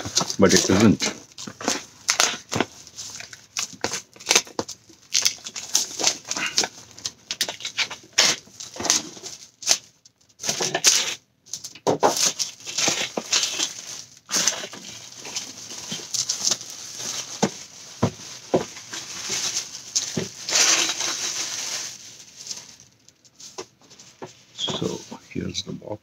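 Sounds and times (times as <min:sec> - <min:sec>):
plastic shrink-wrap crinkling: 0:00.0 - 0:25.0.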